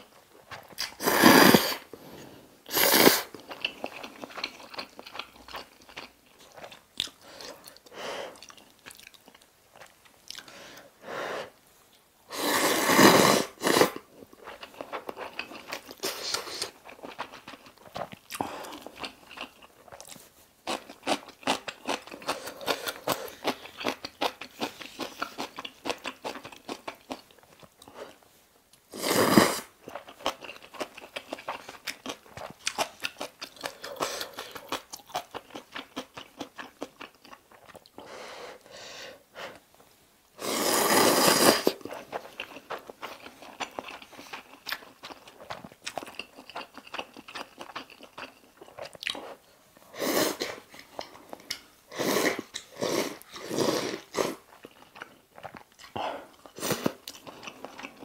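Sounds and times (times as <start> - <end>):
person chewing noodles: 0.4 - 10.6, 12.4 - 28.2, 28.9 - 38.1, 40.4 - 58.0
loud noodle slurp: 1.0 - 1.9, 2.7 - 3.3, 12.3 - 14.0, 29.0 - 29.7, 40.4 - 41.8, 51.9 - 54.4.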